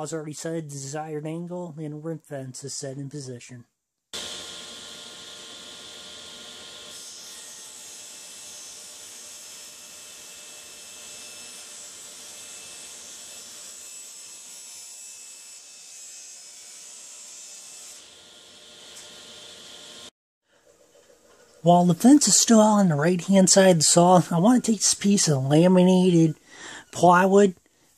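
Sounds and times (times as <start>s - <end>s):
table saw motor running: 4.2s - 14.6s, 16.9s - 20.1s
saw blade cutting board: 4.2s - 20.1s.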